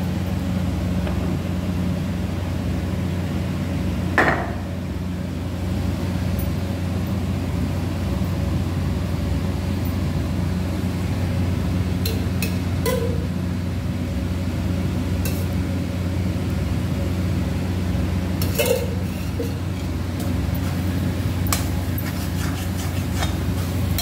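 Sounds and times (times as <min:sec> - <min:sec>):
low electrical hum: 0:00.0 - 0:24.0
kitchen utensil clank: 0:18.4 - 0:19.6.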